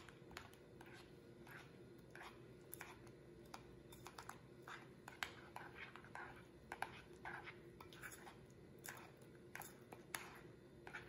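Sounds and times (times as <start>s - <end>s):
faint steady hum: 0.0s - 11.0s
metal spoon scraping glass bowl: 3.9s - 11.0s.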